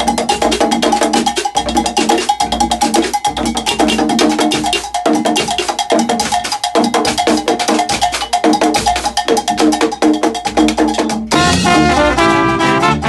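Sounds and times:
hand drums: 0:00.0 - 0:13.0
low brass horn bass line: 0:11.3 - 0:13.0.

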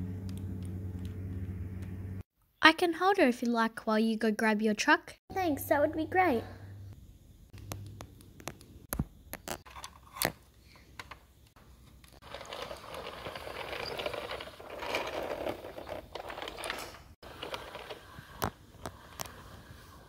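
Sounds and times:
toy truck rolling on floor: 0:12.0 - 0:20.0.

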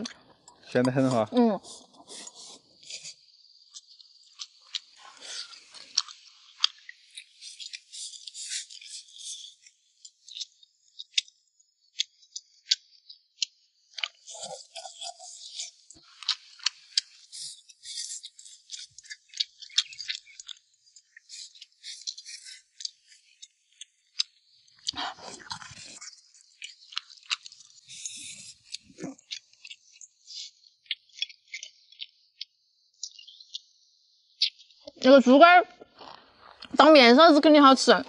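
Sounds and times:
person chewing food: 0:00.0 - 0:33.7, 0:35.8 - 0:36.8
wet mouth clicks and smacks: 0:02.8 - 0:11.3, 0:12.0 - 0:33.6.

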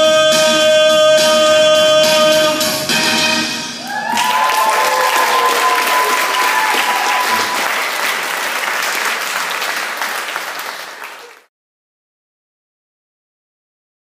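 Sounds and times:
audience applauding: 0:03.8 - 0:11.5.

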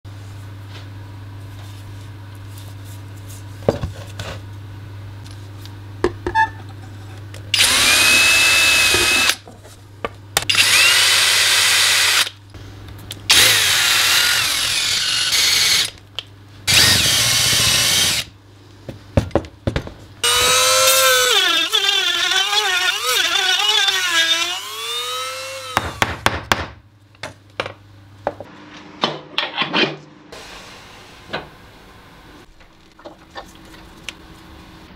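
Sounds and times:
power drill boring into wood: 0:07.6 - 0:09.4, 0:10.5 - 0:12.3, 0:13.3 - 0:15.9, 0:16.7 - 0:18.3, 0:20.2 - 0:25.8.

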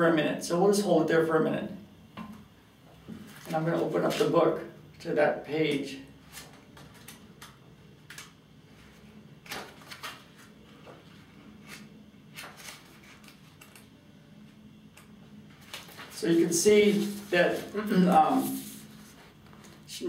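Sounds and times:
book pages rustling: 0:06.2 - 0:13.8, 0:15.5 - 0:16.2, 0:16.8 - 0:19.9.

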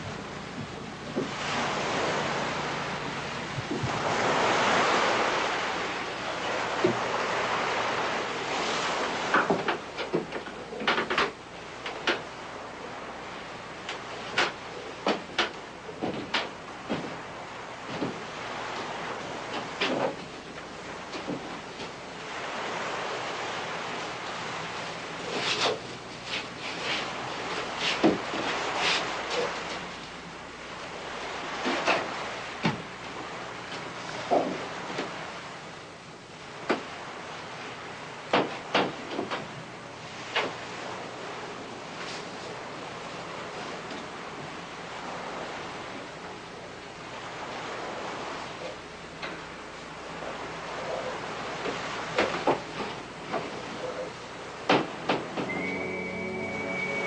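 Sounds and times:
wind noise: 0:00.0 - 0:05.8
sea waves washing: 0:00.0 - 0:57.0
faint knocks: 0:54.6 - 0:55.6.

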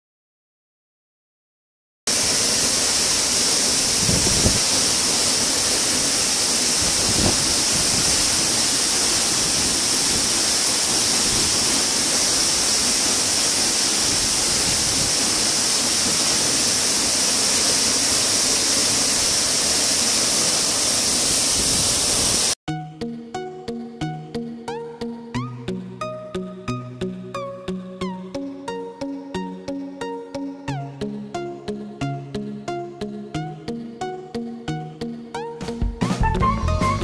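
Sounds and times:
waterfall rushing onto rocks: 0:02.1 - 0:22.6.

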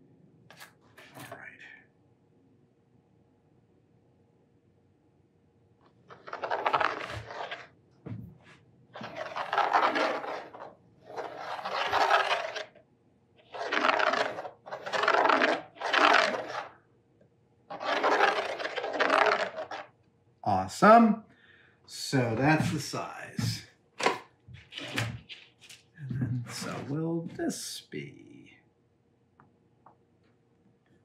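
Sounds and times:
compass tip scraping wood: 0:06.1 - 0:07.7, 0:09.0 - 0:12.8, 0:13.4 - 0:16.7, 0:17.7 - 0:19.9.

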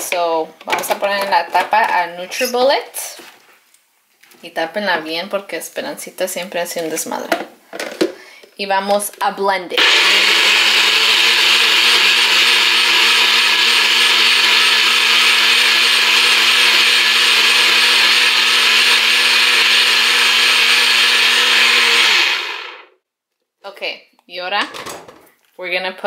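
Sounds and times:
blender motor running: 0:09.8 - 0:22.9.

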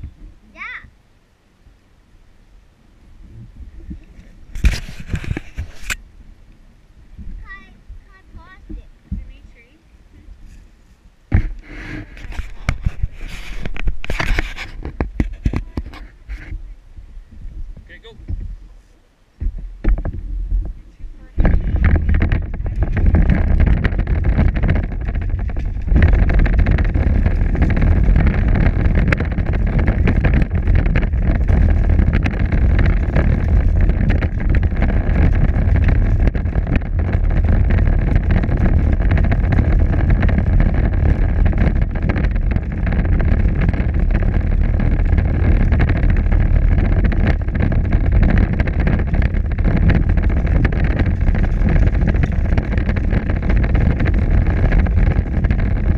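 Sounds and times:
plastic wheels rumbling on concrete: 0:11.3 - 0:16.6, 0:19.4 - 0:55.9.

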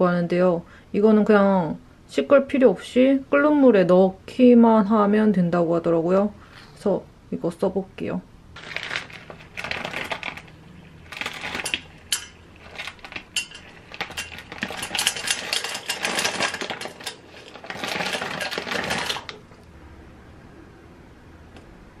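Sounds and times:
clams clattering into a pot: 0:08.6 - 0:19.4.

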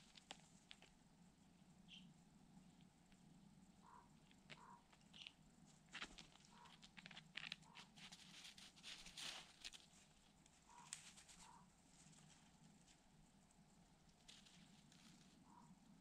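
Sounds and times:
rustling in snow: 0:07.9 - 0:13.0.

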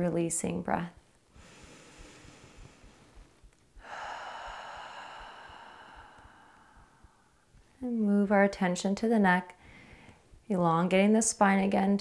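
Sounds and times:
woman breathing in and out: 0:01.3 - 0:07.8, 0:09.6 - 0:10.4.

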